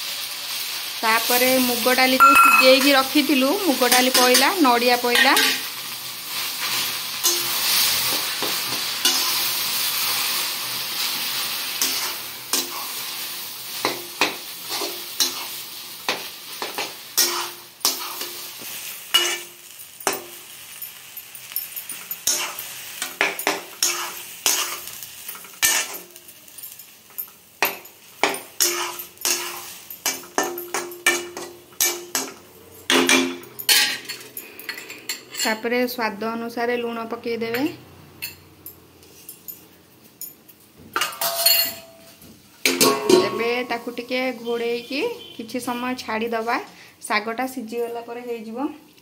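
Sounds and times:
hot oil sizzling: 0.0 - 39.1, 41.2 - 48.6
metal spatula scraping pan: 13.8 - 18.5, 19.1 - 19.5, 21.9 - 26.2, 27.6 - 32.3.

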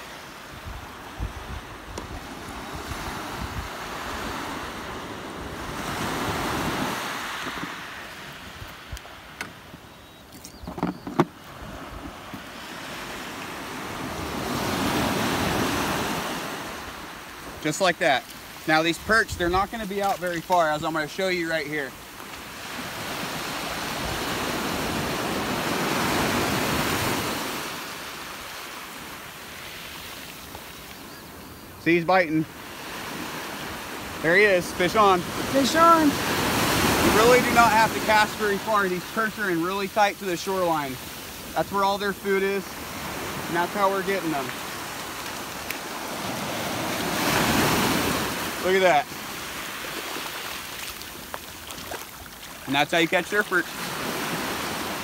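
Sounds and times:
ocean surf washing up beach: 0.0 - 9.9, 10.8 - 55.0
wind rumbling on microphone: 0.0 - 12.8.

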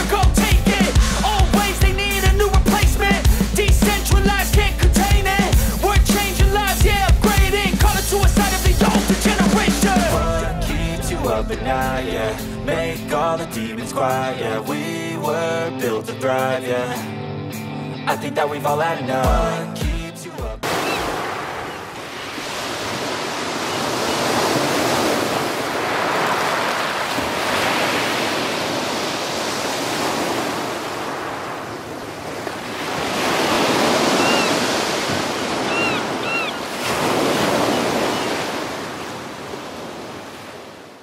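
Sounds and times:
waves washing onto sandy shore: 20.6 - 41.0
short bird calls: 20.8 - 21.1, 33.5 - 34.6, 35.6 - 36.7.

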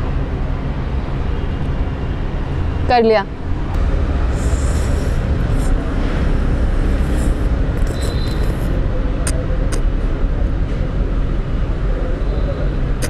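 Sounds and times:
low street rumble: 0.0 - 13.0
sharp clicks: 9.2 - 9.9.

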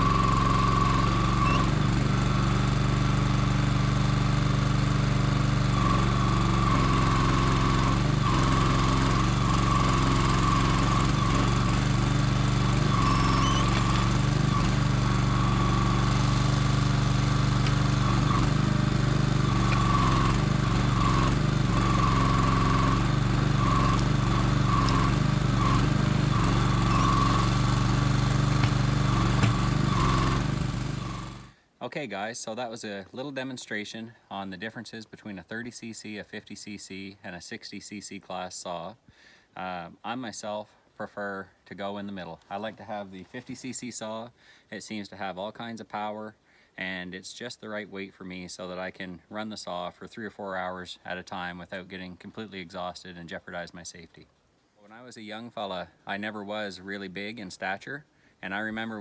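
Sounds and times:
hydraulic crane whine: 0.0 - 2.9, 5.9 - 31.6
small engine running: 0.0 - 31.6.

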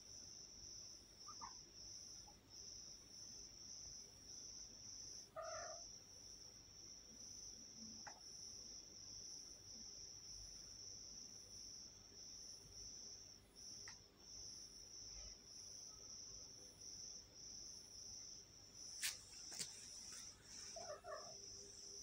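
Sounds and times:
crickets chirping: 0.0 - 22.0
cat meowing: 5.4 - 5.8, 20.8 - 21.4.

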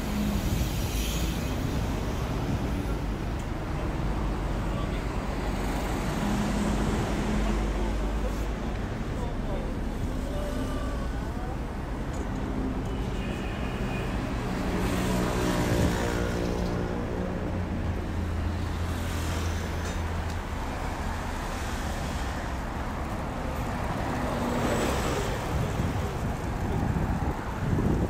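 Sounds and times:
cars passing: 0.0 - 28.0.

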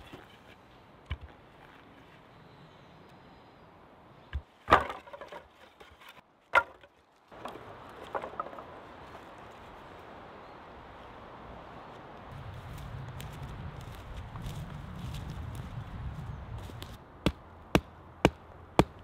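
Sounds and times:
wooden poles knocking together: 4.4 - 8.8.

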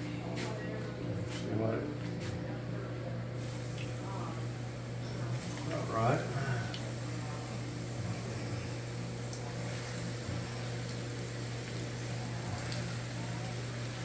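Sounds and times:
shrimp sizzling in hot oil: 3.4 - 14.0.

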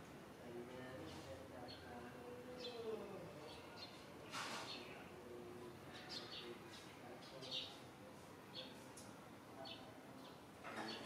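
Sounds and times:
small birds chirping: 1.1 - 7.9, 9.6 - 11.0.

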